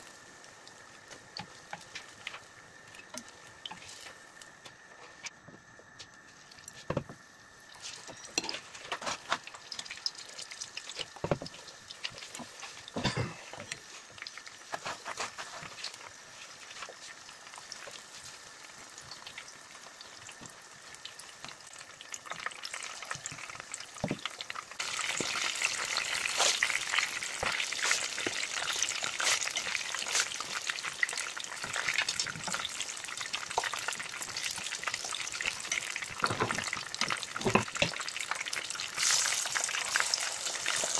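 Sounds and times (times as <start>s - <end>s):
oil sizzling in frying pan: 0.0s - 5.4s, 6.0s - 40.9s.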